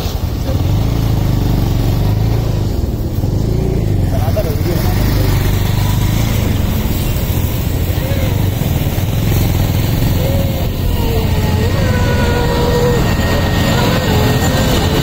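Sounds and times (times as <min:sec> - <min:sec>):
heavy vehicle engine rumbling: 0:00.0 - 0:15.0.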